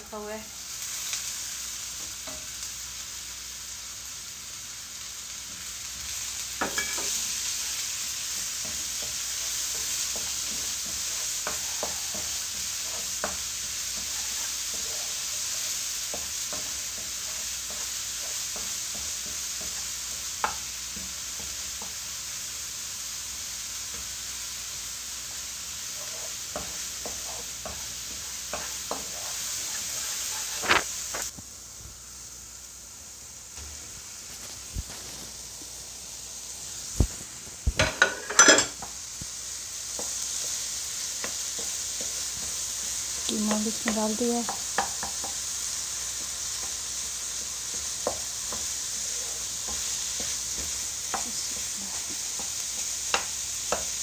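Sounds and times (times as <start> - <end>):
onion sizzling in a wok: 0.0 - 54.0
wooden spoon scraping a pan: 6.1 - 22.0, 25.3 - 31.3, 33.6 - 35.6, 37.8 - 39.0, 39.9 - 54.0
spoon tapping a pan: 6.6 - 7.2, 8.3 - 15.0, 16.1 - 22.0, 26.0 - 30.1, 37.7 - 39.0, 43.2 - 45.4, 47.7 - 48.8, 49.6 - 54.0.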